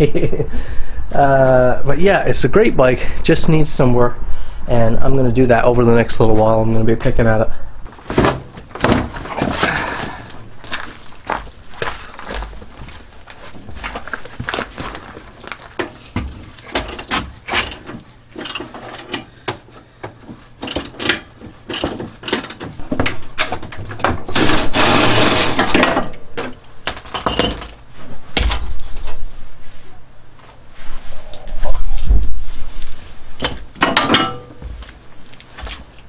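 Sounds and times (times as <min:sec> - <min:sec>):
metal clicks and knocks of tools: 0:15.8 - 0:19.6, 0:20.6 - 0:23.8.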